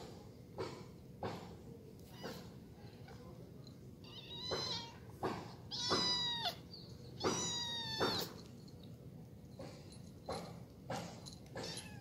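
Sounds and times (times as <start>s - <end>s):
kitten crying high-pitched: 4.0s - 5.0s, 5.7s - 8.4s.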